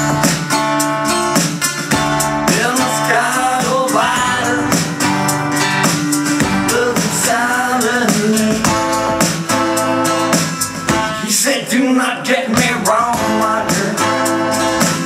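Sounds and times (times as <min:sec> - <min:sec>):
strummed acoustic guitar: 0:00.0 - 0:15.0
man singing: 0:02.4 - 0:05.1, 0:06.1 - 0:10.2, 0:10.9 - 0:15.0.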